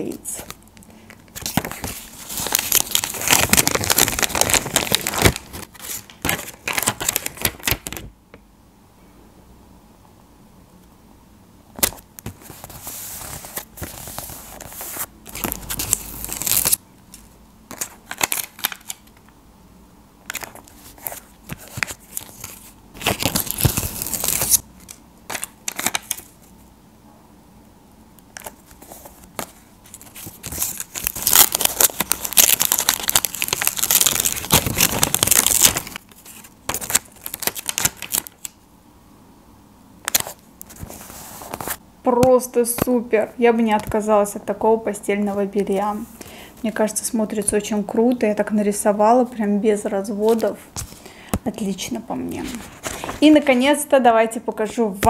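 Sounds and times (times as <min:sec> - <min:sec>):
paper rustling and rubbing: 0:01.4 - 0:08.0, 0:12.2 - 0:16.8, 0:20.3 - 0:26.5, 0:28.4 - 0:38.4, 0:40.1 - 0:41.8, 0:51.6 - 0:53.6.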